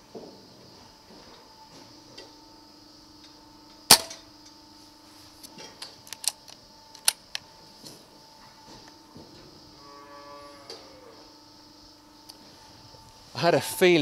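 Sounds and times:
low steady hum: 0.1s - 14.0s
air rifle shot: 3.9s - 4.2s.

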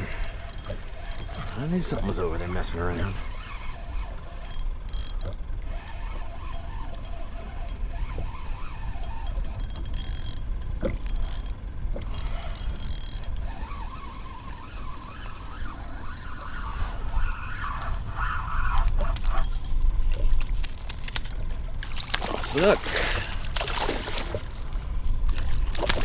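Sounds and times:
fishing reel whirring and clicking: 0.0s - 26.0s
wind rumbling on microphone: 13.4s - 26.0s.

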